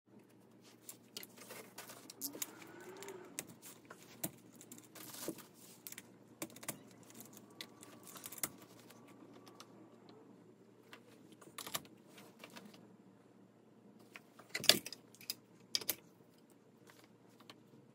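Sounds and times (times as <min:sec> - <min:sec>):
chair parts clicking and knocking: 0:14.1 - 0:16.1.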